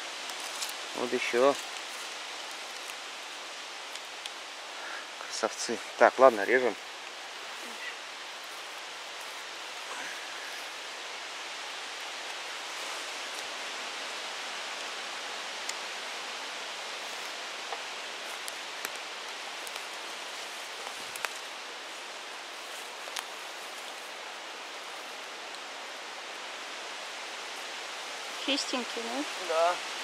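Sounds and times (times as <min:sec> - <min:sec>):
leaf litter rustling and clicking: 0:00.0 - 0:04.4, 0:17.0 - 0:22.1, 0:22.7 - 0:24.1
steady outdoor hiss: 0:00.0 - 0:30.0.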